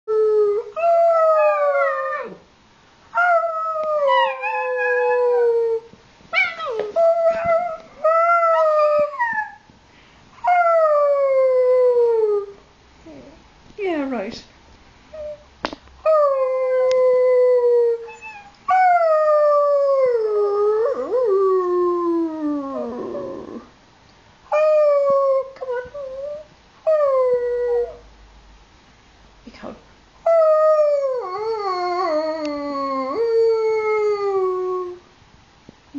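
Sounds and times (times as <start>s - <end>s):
puppy howling: 3.2s - 5.8s, 6.4s - 9.6s, 16.1s - 23.6s, 30.3s - 35.0s.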